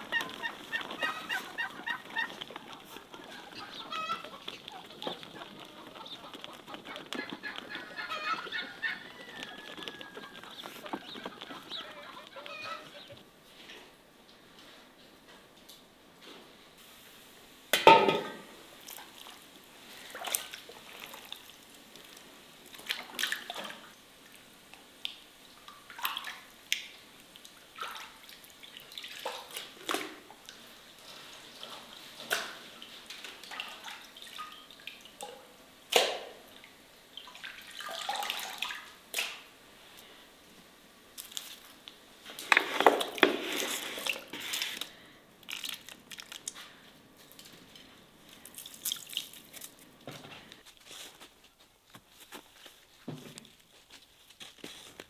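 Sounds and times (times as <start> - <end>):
water sloshing: 0.0 - 13.2, 36.0 - 39.4
water splashing in a basin: 18.8 - 24.0, 25.0 - 39.5, 48.4 - 49.8.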